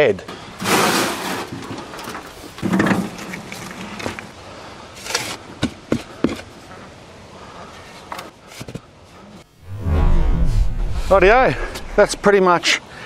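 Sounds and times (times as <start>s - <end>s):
shovel scraping through compost: 0.6s - 1.5s.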